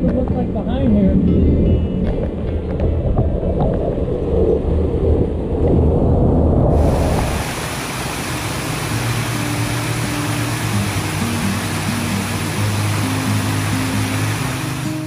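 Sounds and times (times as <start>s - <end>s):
water pouring over camera: 6.7s - 15.0s
waterfall rushing: 6.7s - 15.0s.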